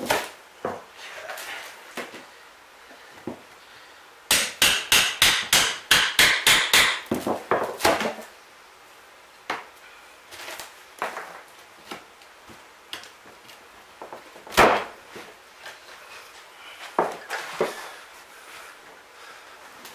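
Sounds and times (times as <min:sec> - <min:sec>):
hammer striking pry bar: 0:04.3 - 0:07.0.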